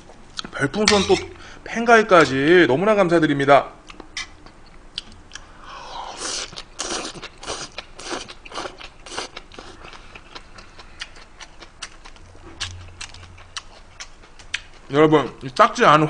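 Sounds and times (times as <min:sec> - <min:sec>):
small sharp chewing clicks: 0:03.8 - 0:05.5, 0:06.4 - 0:15.7
person slurping noodles: 0:05.8 - 0:09.8.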